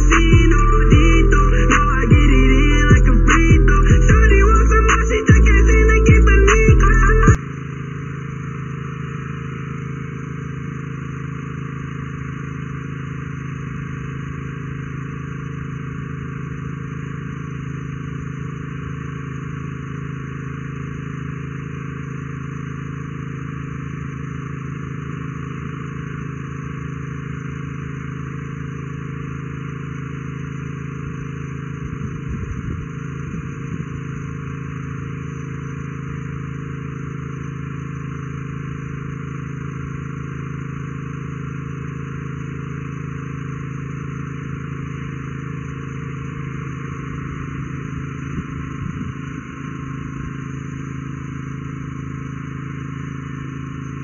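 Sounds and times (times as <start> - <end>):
low droning hum: 0.0 - 7.5, 31.0 - 36.2, 44.2 - 54.0.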